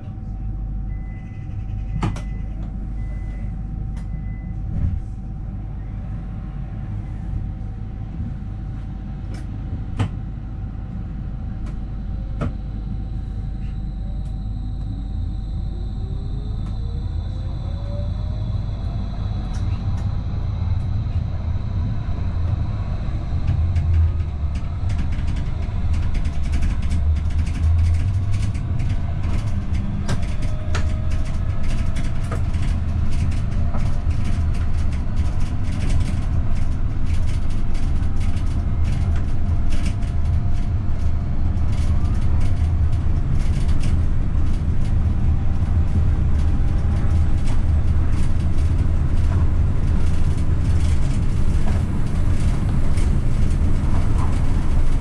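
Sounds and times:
wheels rumbling on rail: 0:00.0 - 0:55.0
electric drive whine: 0:11.5 - 0:30.8.

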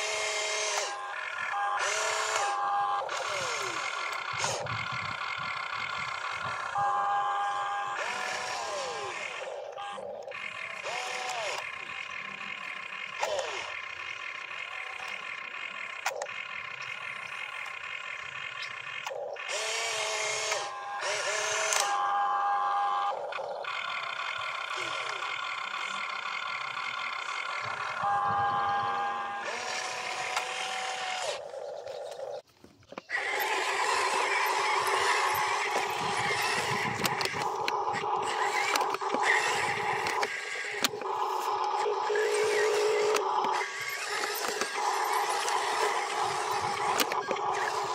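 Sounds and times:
toy excavator motors whining: 0:00.0 - 0:47.9
small clicks: 0:20.4 - 0:22.0, 0:31.2 - 0:47.9.

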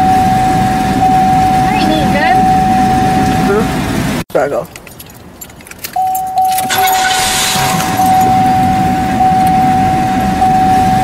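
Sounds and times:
steady high tone: 0:00.0 - 0:03.8, 0:06.0 - 0:11.0
low rumbling noise: 0:00.0 - 0:04.2, 0:06.7 - 0:11.0
jangling clicks: 0:04.6 - 0:08.3.

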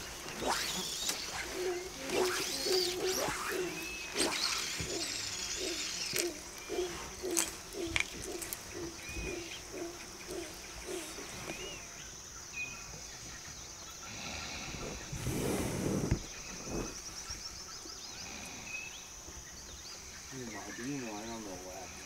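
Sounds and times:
low animal call: 0:00.0 - 0:11.8
high insect whine: 0:00.0 - 0:22.0.

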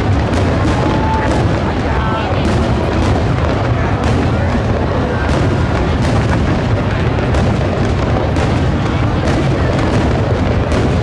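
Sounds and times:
fireworks booming and crackling: 0:00.0 - 0:11.0.

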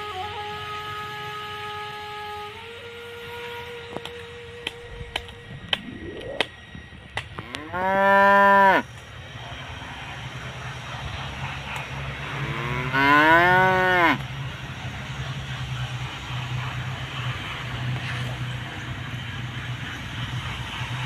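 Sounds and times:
low steady hum: 0:00.0 - 0:21.0
cattle mooing: 0:07.4 - 0:08.9, 0:12.2 - 0:14.2.

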